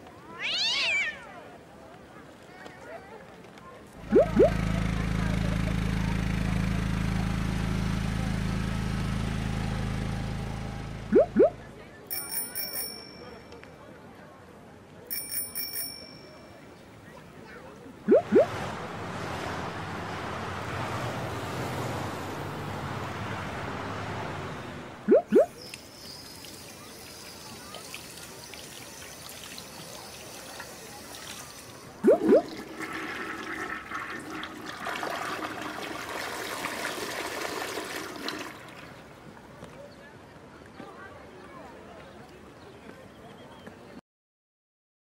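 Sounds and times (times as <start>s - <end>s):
rising bloop tones: 4.0s - 4.6s, 11.1s - 11.6s, 18.1s - 18.7s, 25.0s - 25.5s, 32.0s - 32.6s
water running through pipes: 4.0s - 4.6s, 18.1s - 21.5s, 25.0s - 39.0s
toilet flush gush: 26.2s - 38.9s.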